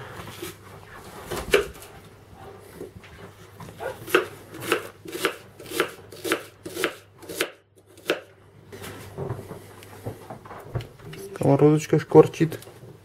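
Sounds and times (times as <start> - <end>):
knife slicing onion on board: 1.4 - 1.9, 3.8 - 8.3.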